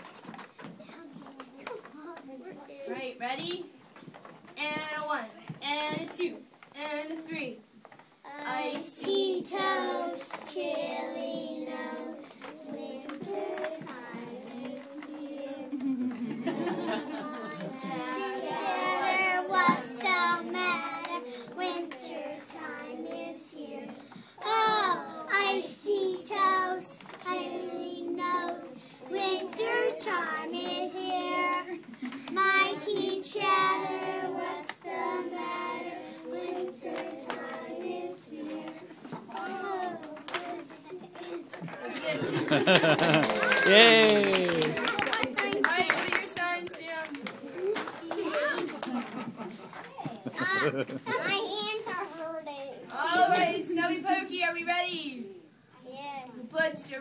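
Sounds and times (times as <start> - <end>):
young children singing: 8.3 - 46.0, 50.3 - 52.2.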